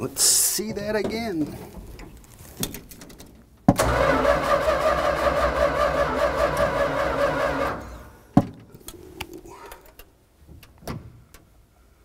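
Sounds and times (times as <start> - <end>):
engine starter cranking: 3.8 - 8.2.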